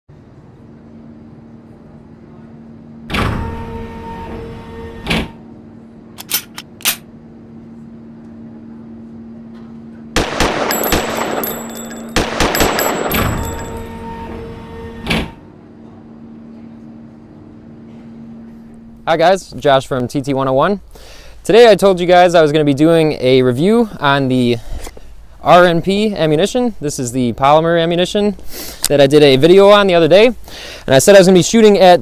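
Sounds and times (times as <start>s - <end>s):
low hum: 0.2s - 19.6s
rapid burst of gunfire: 10.2s - 13.6s
gunshots: 10.2s - 13.8s.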